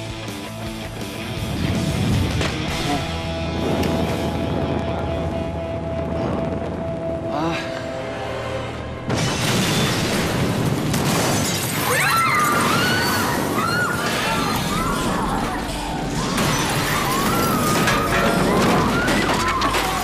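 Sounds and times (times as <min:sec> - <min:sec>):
fire: 0:01.3 - 0:08.5, 0:09.1 - 0:20.0
debris crashing: 0:09.1 - 0:20.0
glass shattering: 0:09.1 - 0:20.0.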